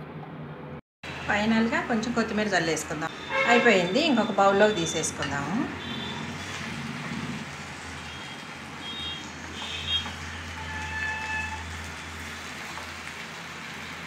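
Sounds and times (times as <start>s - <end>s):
short high squeaks: 10.6s - 11.7s.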